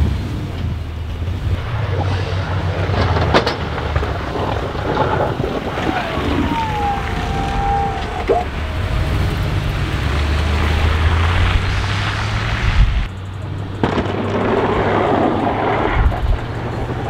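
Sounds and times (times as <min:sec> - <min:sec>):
plow blade pushing slushy snow: 0:00.0 - 0:17.0
truck engine running: 0:00.0 - 0:17.0
wind buffeting microphone: 0:00.0 - 0:17.0
short whine: 0:01.6 - 0:03.8.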